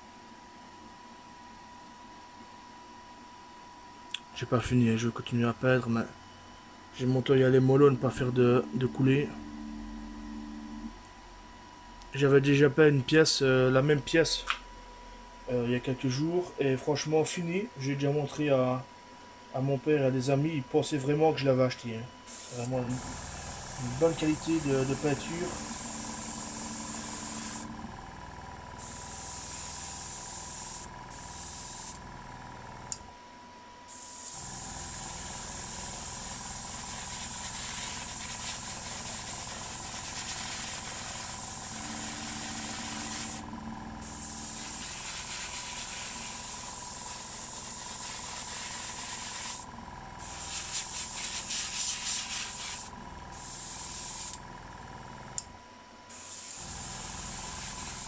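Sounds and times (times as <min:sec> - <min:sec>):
compressor humming: 0:04.1 - 0:15.5, 0:22.1 - 0:33.2, 0:33.9 - 0:58.0
airbrush hissing: 0:22.3 - 0:27.9, 0:28.8 - 0:32.0, 0:33.9 - 0:54.4, 0:56.1 - 0:58.0.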